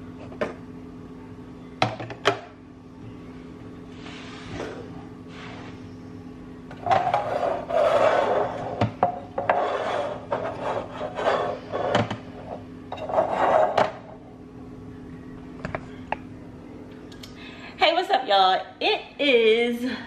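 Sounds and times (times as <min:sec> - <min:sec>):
faint steady hum: 0:00.0 - 0:20.0
plastic cups rubbing and scraping: 0:06.8 - 0:13.8.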